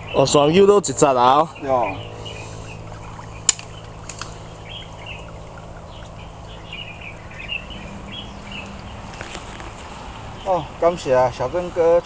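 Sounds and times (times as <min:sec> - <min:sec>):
small birds chirping: 0:00.0 - 0:12.0
faint clicks: 0:03.5 - 0:04.4.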